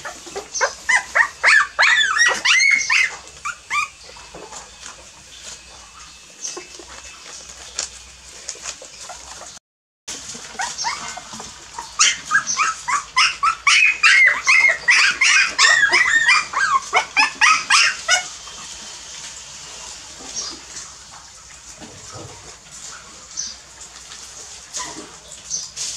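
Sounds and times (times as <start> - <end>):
puppies yelping and whimpering: 0.0 - 9.6, 10.4 - 18.5.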